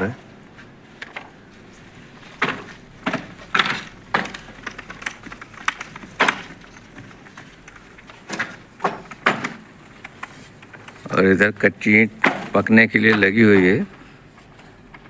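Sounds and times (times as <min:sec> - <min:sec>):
bricks knocking together: 0:02.4 - 0:10.8.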